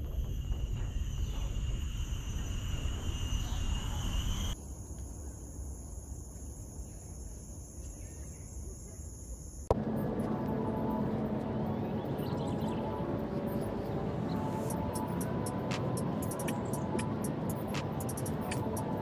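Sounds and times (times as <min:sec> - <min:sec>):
wind rumble on microphone: 0:00.0 - 0:04.6
insects trilling: 0:00.0 - 0:19.0.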